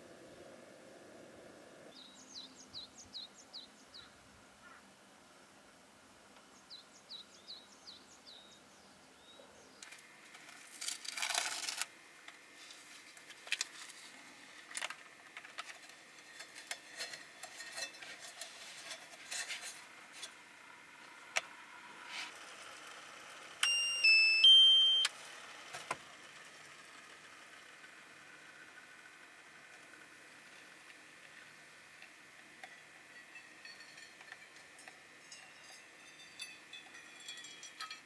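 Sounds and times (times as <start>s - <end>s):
bird chirps: 1.9s - 4.8s, 23.6s - 25.1s
paper rustling: 10.3s - 11.9s
electronic kettle chime: 23.6s - 25.1s.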